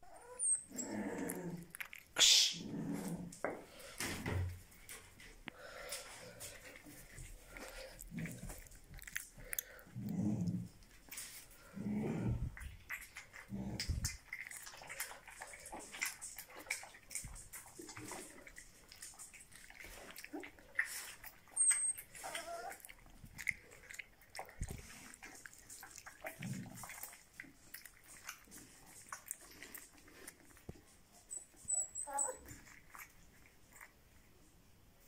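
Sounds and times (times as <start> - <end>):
puppy whining: 0.0 - 2.0, 12.2 - 33.9.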